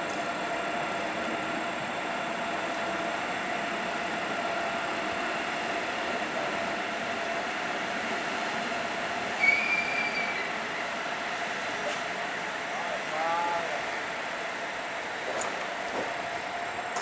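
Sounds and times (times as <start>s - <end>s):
train equipment humming: 0.0s - 17.0s
brief high squeal: 9.4s - 10.9s.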